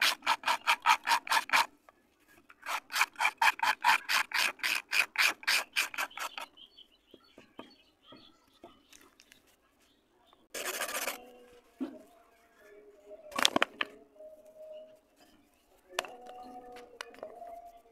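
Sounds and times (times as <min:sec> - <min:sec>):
knife scraping clay: 0:00.0 - 0:06.5, 0:10.5 - 0:12.0
dry clay cracking: 0:08.8 - 0:09.6, 0:13.3 - 0:14.0.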